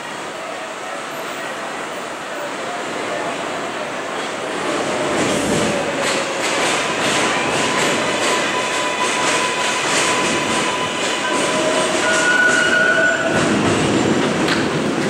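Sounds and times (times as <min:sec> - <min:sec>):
train wheels rumbling on rails: 0:01.1 - 0:15.0
two-tone squeal: 0:07.7 - 0:13.6.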